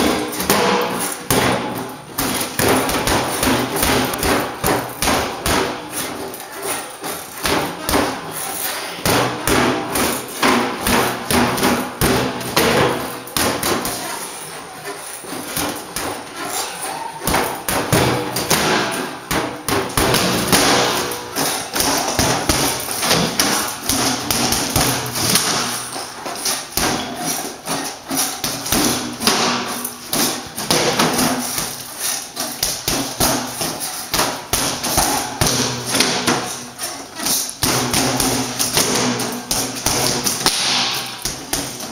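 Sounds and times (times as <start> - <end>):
gloves punching reflex bag: 17.2 - 41.9.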